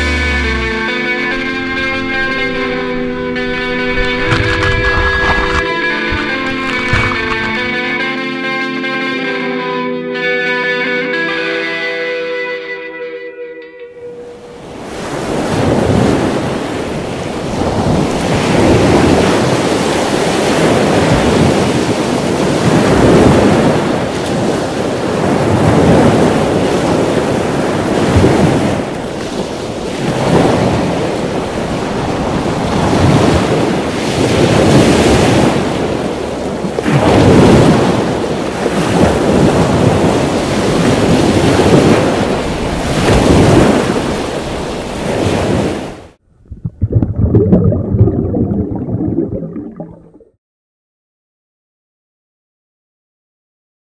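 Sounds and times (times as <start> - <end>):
water rushing and spraying: 0.0 - 7.8, 46.8 - 50.2
wind buffeting microphone: 1.3 - 7.8, 14.7 - 49.6.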